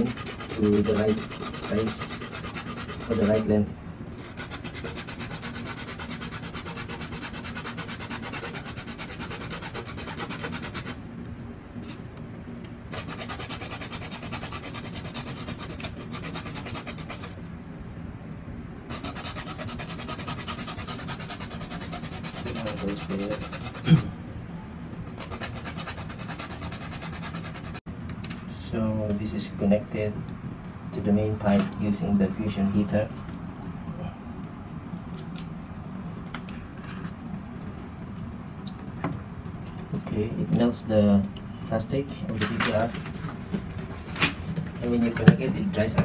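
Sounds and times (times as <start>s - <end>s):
hacksaw sawing plastic pipe: 0.0s - 3.5s, 4.3s - 11.0s, 12.9s - 17.3s, 18.9s - 23.9s.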